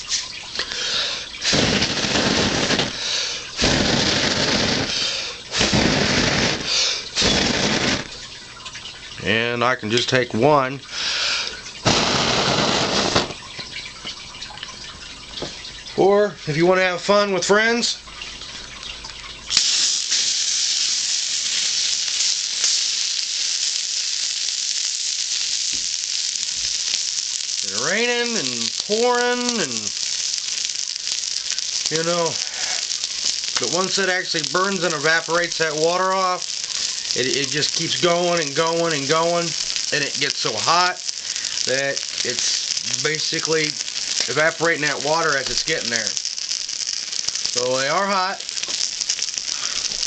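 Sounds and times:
water hissing on fire: 0.0s - 9.2s, 10.8s - 15.8s, 19.4s - 50.0s
air blown on microphone: 0.8s - 8.1s, 11.9s - 13.4s.

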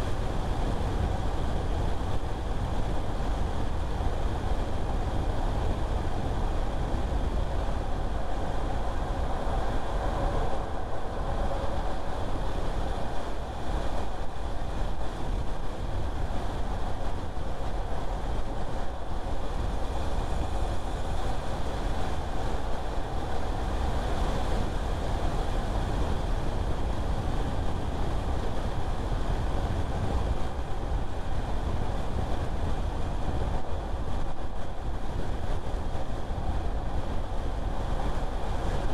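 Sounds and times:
car tyre and road noise: 0.0s - 38.9s.

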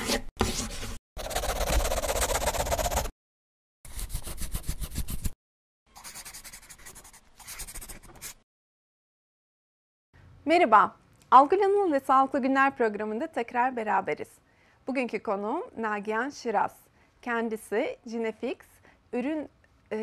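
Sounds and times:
pencil scribbling on paper: 0.0s - 3.1s, 3.9s - 5.4s, 6.0s - 8.4s.

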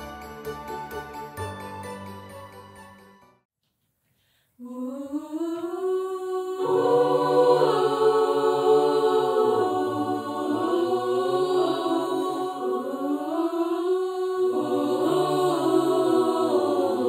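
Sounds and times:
choir singing a cappella: 4.6s - 17.0s.

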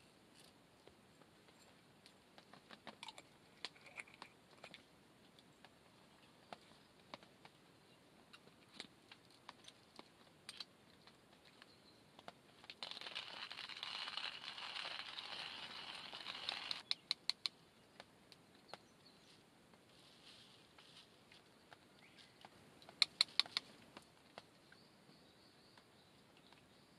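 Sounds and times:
faint clicks: 8.3s - 19.0s, 20.7s - 24.8s
hand coffee grinder grinding: 12.8s - 16.8s.

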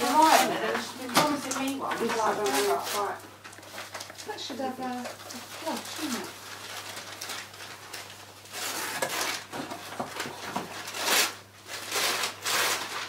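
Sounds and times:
wrapping paper tearing: 0.0s - 13.0s.

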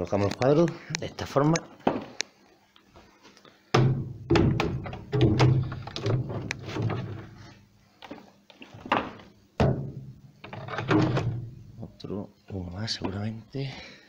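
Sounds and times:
wooden frames knocking: 3.7s - 7.4s, 8.8s - 11.6s.

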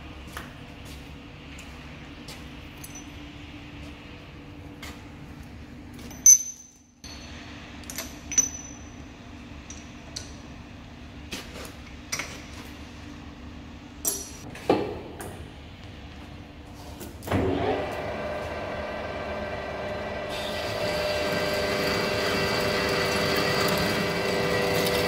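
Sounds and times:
metal tooling clinks: 2.8s - 3.2s, 6.1s - 9.0s
lathe spindle humming: 17.6s - 25.0s.

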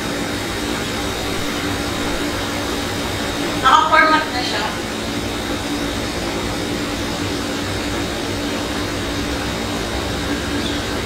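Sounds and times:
fan-like hum and hiss: 0.0s - 11.0s
low droning tone: 0.9s - 5.1s.

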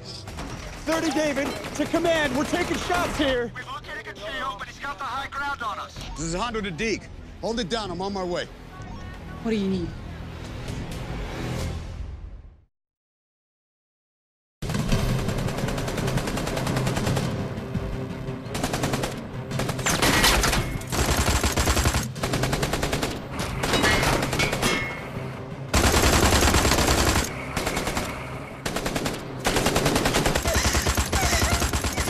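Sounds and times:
automatic gunfire bursts: 18.6s - 23.1s, 25.7s - 32.0s.

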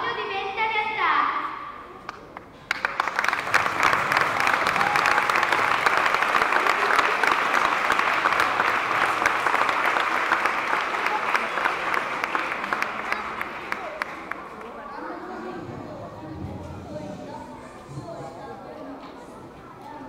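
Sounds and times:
audience applauding: 2.1s - 15.1s.

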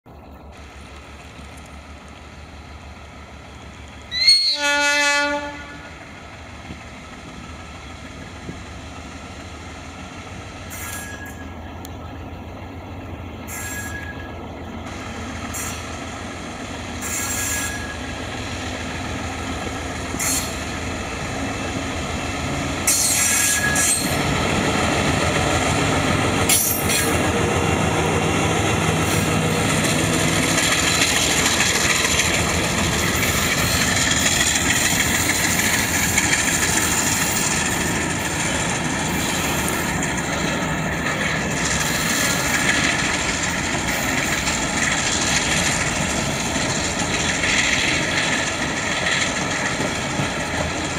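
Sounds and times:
diesel locomotive engine: 0.0s - 50.9s
wagon wheels rumbling on rails: 19.0s - 50.9s.

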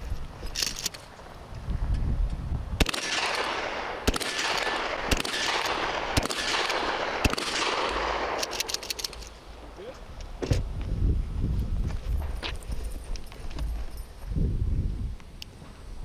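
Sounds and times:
shotgun shots: 2.8s - 9.0s.

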